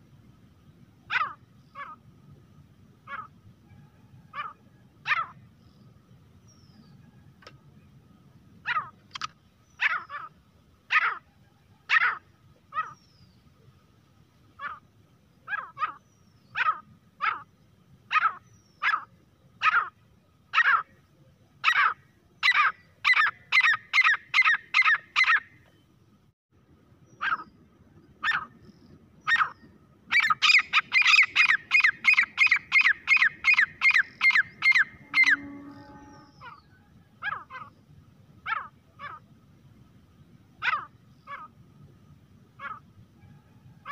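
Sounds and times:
francolin calling: 21.6 - 25.5, 27.0 - 37.8.

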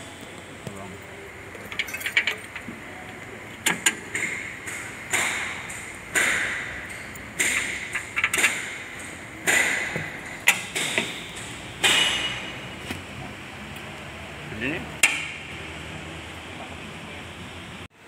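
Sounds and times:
hammer striking steel: 3.7 - 12.7.

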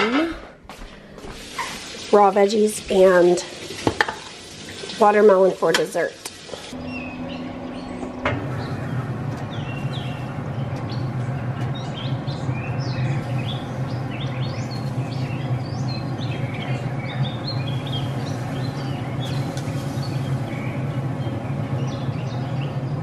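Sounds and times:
songbirds chirping: 6.7 - 23.0
steady low hum: 6.8 - 23.0.

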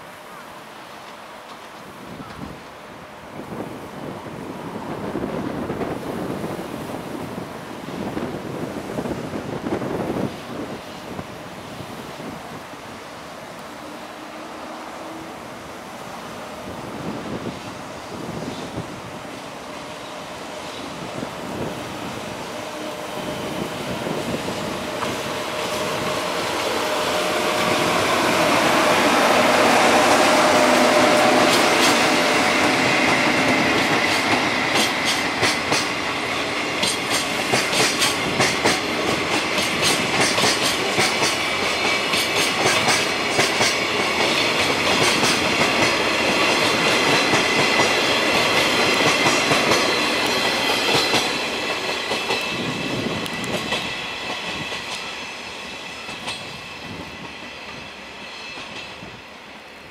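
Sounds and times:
train wheels clacking over rail joints: 24.1 - 59.1.

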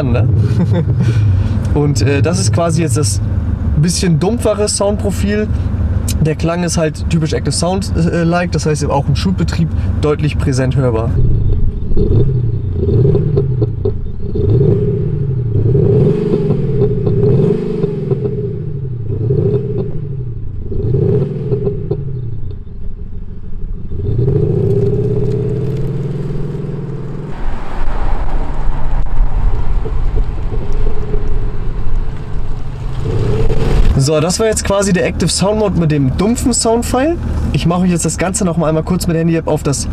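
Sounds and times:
car engine revving: 0.0 - 39.9
car exhaust burbling and popping: 0.0 - 39.9
car pulling away and driving past: 11.2 - 38.1.

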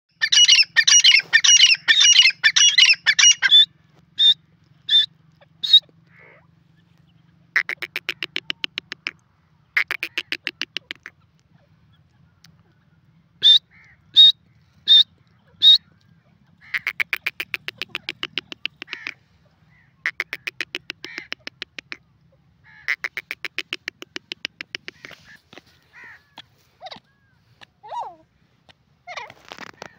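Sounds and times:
francolin calling: 0.1 - 6.5, 13.4 - 16.0.

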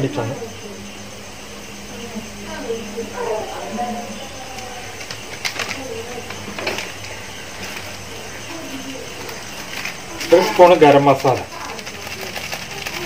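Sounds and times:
sharp crackles: 4.4 - 13.0.

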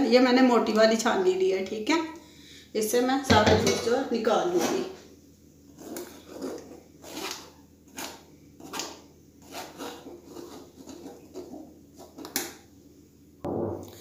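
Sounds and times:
spoon scraping metal mesh strainer: 5.8 - 12.3.

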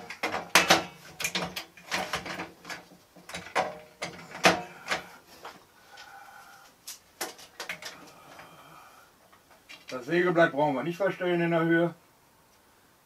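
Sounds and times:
metal parts clicking and rattling: 0.0 - 5.1.

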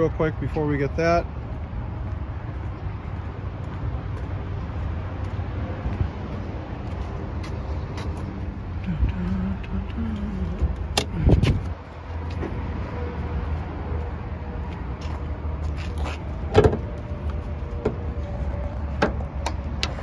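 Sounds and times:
steady low rumble: 1.2 - 20.0
hood latch click and thud: 16.5 - 16.9, 19.0 - 20.0.

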